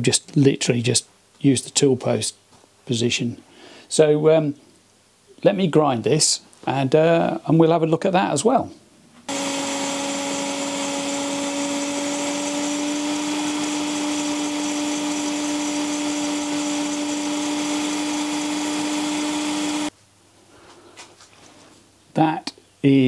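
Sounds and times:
grinder grinding on a lathe: 9.3s - 19.9s.

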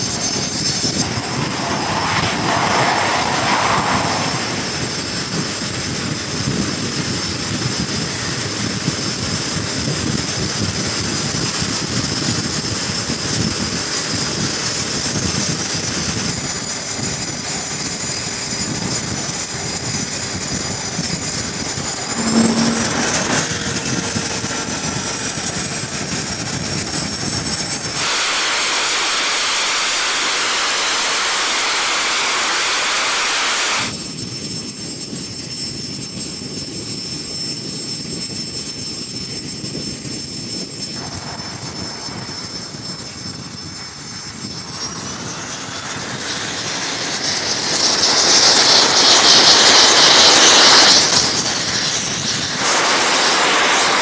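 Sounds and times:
jet rushing hiss: 0.0s - 5.6s, 21.3s - 24.2s, 28.0s - 33.9s, 48.6s - 54.0s
jet engine whine: 0.0s - 54.0s.

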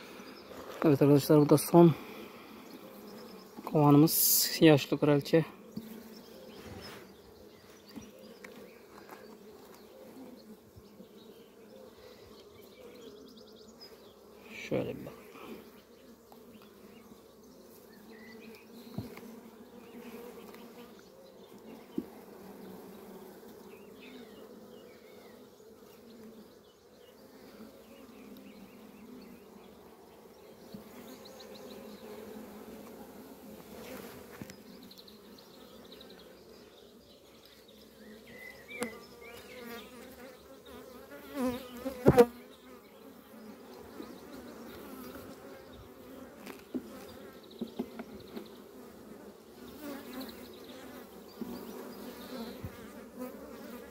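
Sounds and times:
honeybees buzzing: 0.0s - 53.9s
sharp knocks of hive frames: 18.9s - 19.3s, 41.4s - 42.4s, 46.4s - 48.5s.

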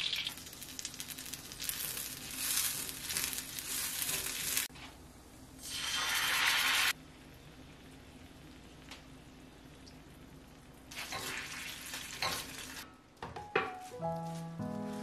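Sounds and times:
sauce sizzling in a frying pan: 0.0s - 4.7s, 5.6s - 8.8s.

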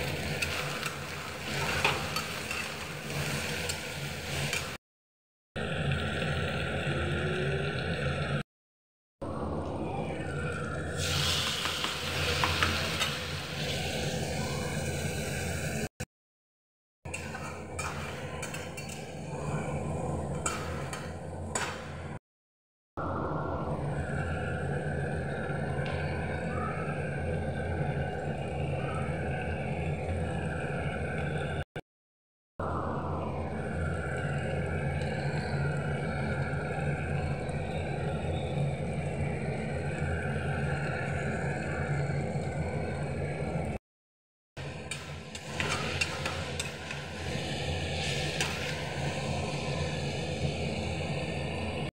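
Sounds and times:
metal ladle scraping a pan: 0.0s - 4.8s, 17.1s - 19.2s, 45.3s - 49.1s.

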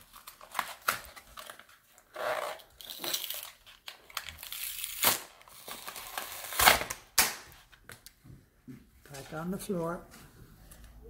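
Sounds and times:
packaging tearing and crinkling: 0.0s - 7.3s
sharp plastic cracks: 2.9s - 8.1s.

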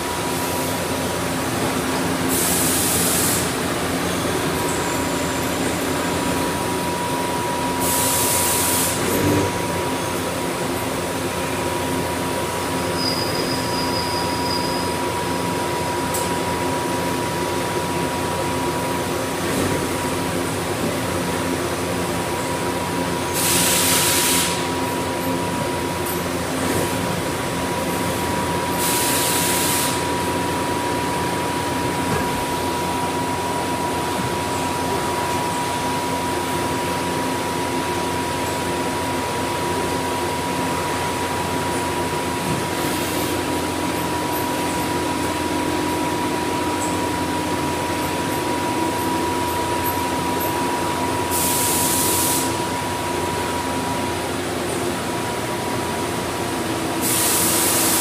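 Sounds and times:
lathe mechanical drone and whine: 0.0s - 58.0s
coolant hissing surges: 2.3s - 3.6s, 7.8s - 9.4s, 23.3s - 24.7s, 28.8s - 30.1s, 51.3s - 52.6s.

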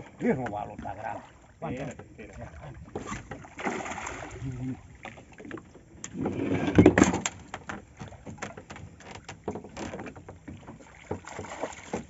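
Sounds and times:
fish splashing at surface: 3.1s - 4.6s.

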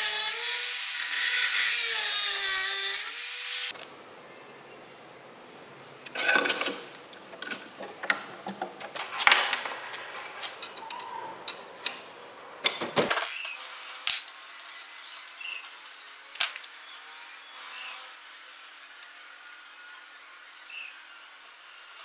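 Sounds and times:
metal clicks and clanks: 6.1s - 12.0s.

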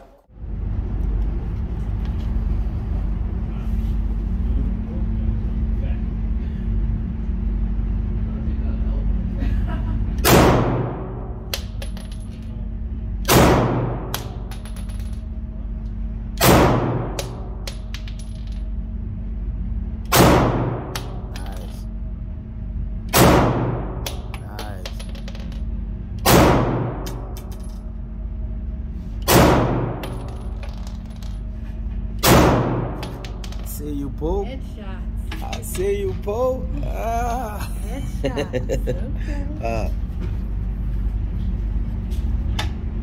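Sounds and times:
pistol shots indoors: 10.2s - 11.8s, 13.2s - 14.7s, 16.4s - 18.1s, 20.0s - 21.3s, 23.1s - 24.3s, 26.2s - 27.6s, 29.2s - 30.6s, 32.2s - 33.4s.

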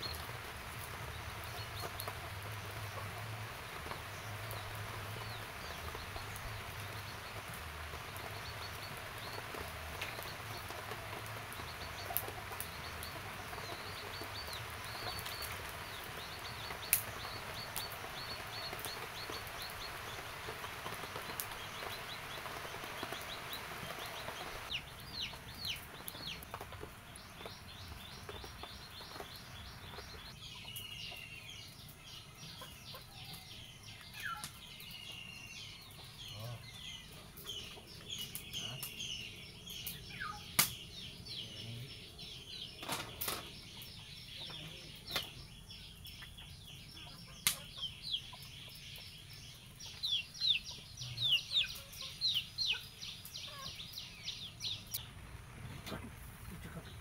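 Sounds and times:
small birds chirping: 0.0s - 57.0s
chickens clucking: 1.5s - 33.5s, 35.8s - 38.9s, 46.1s - 55.0s.

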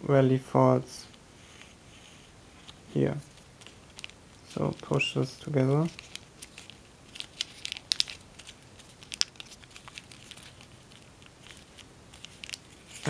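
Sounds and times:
foil paper crinkling: 3.2s - 13.0s.

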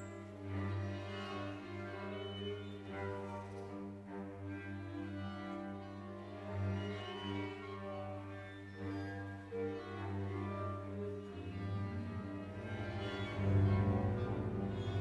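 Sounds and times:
low bowed strings: 0.0s - 15.0s
orchestra playing: 11.2s - 15.0s.

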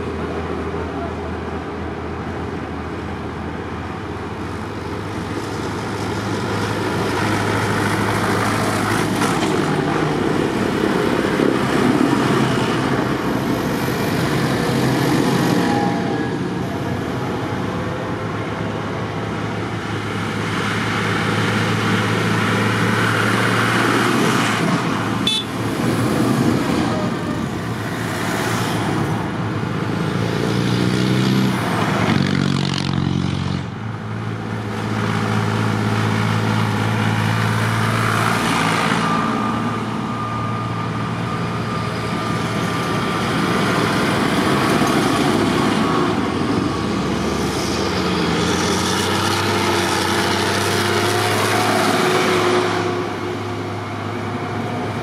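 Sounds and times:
tractor engines passing: 0.0s - 55.0s
tyres on tarmac: 0.0s - 55.0s.

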